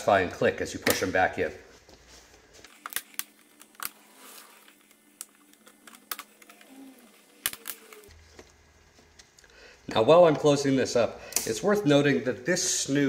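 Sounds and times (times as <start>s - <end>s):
plastic clips clicking: 7.3s - 8.1s.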